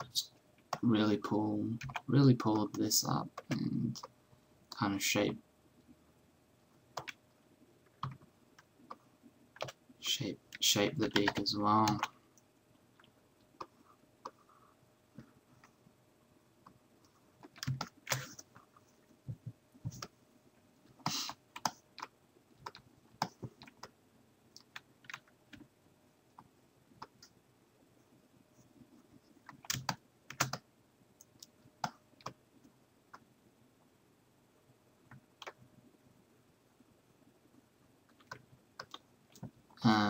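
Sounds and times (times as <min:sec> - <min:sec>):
computer keys clicking: 0:01.7 - 0:04.1, 0:07.0 - 0:07.2, 0:07.9 - 0:09.0, 0:09.6 - 0:09.8, 0:10.5 - 0:12.2, 0:17.4 - 0:18.4, 0:21.6 - 0:25.7, 0:29.4 - 0:30.6, 0:38.1 - 0:39.5.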